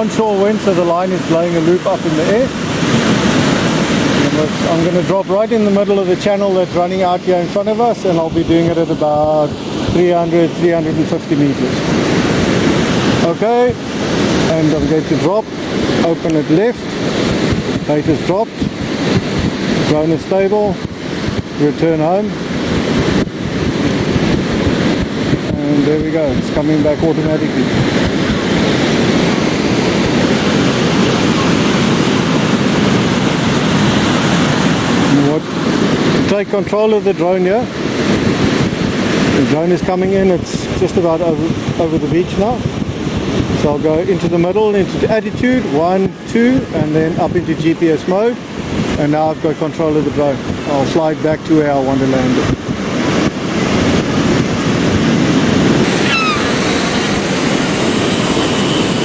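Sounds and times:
drone propellers buzzing: 0:00.0 - 0:36.3, 0:53.1 - 0:59.0
ocean surf breaking: 0:00.0 - 0:59.0
wind on microphone: 0:00.0 - 0:59.0
steady high whine: 0:55.6 - 0:59.0
falling chirp: 0:55.8 - 0:58.9.

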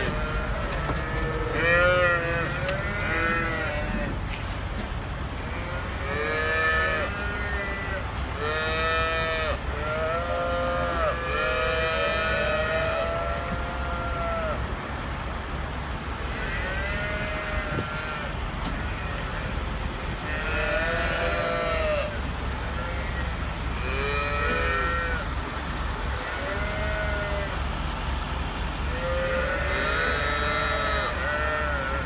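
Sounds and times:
cattle mooing: 0:00.0 - 0:04.2, 0:05.5 - 0:14.6, 0:20.3 - 0:25.3, 0:28.9 - 0:32.0
diesel engine low rumble: 0:00.0 - 0:32.0.

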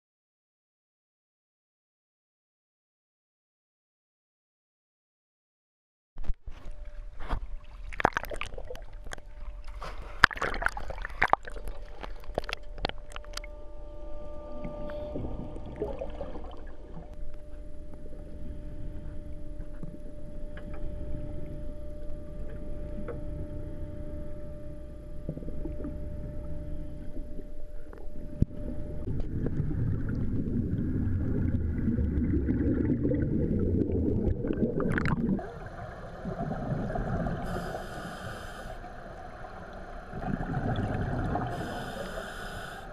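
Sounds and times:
water splashing: 0:07.5 - 0:13.4, 0:29.1 - 0:37.6
low rumble: 0:11.0 - 0:41.8
faint steady tone: 0:11.3 - 0:42.9
muffled underwater sound: 0:14.4 - 0:42.9.

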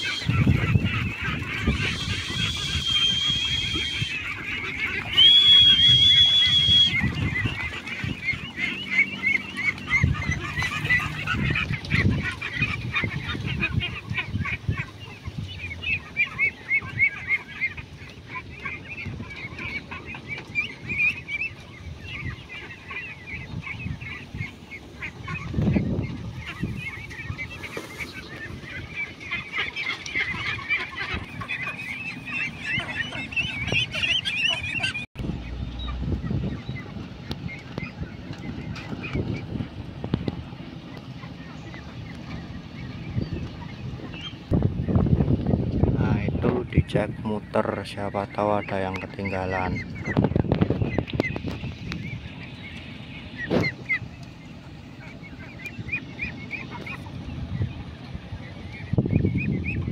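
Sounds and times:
ducklings quacking: 0:00.0 - 0:59.9
low thumps: 0:35.2 - 0:37.4.

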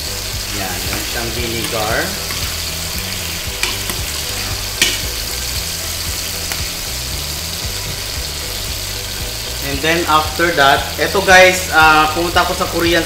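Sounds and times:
sauce sizzling in a frying pan: 0:00.0 - 0:13.0
metal spoon clinking on pan: 0:00.9 - 0:02.6, 0:03.6 - 0:04.2.

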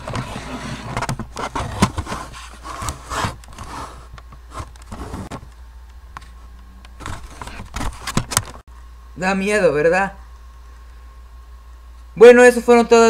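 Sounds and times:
camera handling rubbing and scraping: 0:00.0 - 0:05.4, 0:07.0 - 0:08.6.

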